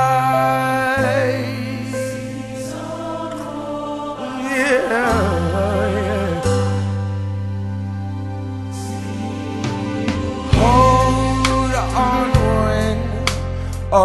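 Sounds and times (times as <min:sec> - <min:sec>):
inspirational song with singing: 0:00.0 - 0:14.0
held bass notes: 0:04.2 - 0:14.0.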